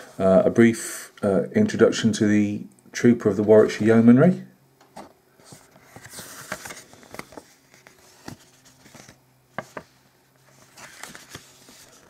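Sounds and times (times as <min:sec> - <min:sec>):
paper pages rustling: 0:05.0 - 0:12.0.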